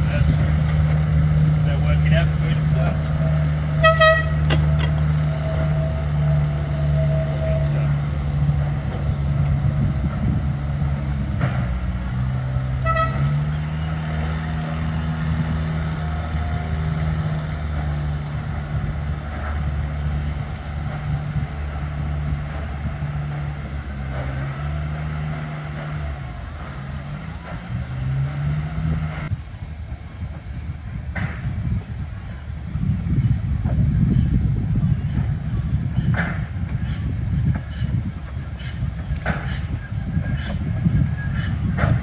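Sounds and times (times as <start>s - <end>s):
engine running with low hum: 0.0s - 42.0s
short horn toot: 3.2s - 4.6s, 12.8s - 13.7s.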